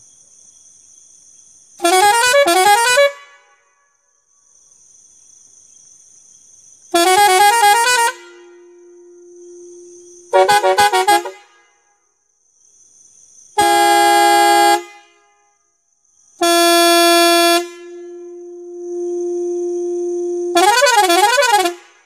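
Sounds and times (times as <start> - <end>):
musical horn: 1.8 - 3.4, 7.0 - 11.6, 13.6 - 15.3, 16.4 - 22.0.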